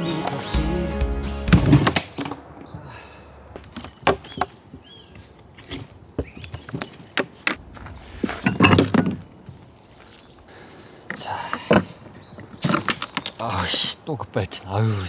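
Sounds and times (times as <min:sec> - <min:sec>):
small birds chirping: 0:00.0 - 0:03.3, 0:04.2 - 0:15.0
camping gear knocking and clattering: 0:01.5 - 0:02.4, 0:03.6 - 0:04.6, 0:05.6 - 0:09.6, 0:11.6 - 0:13.8.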